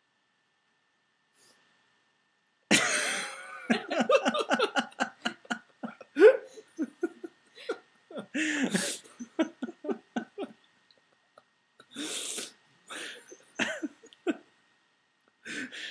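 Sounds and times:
person laughing hard: 2.7 - 10.6, 12.9 - 14.4.

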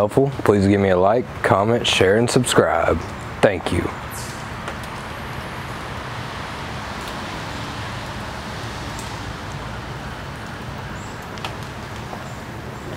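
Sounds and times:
faint clicks: 10.4 - 12.2.

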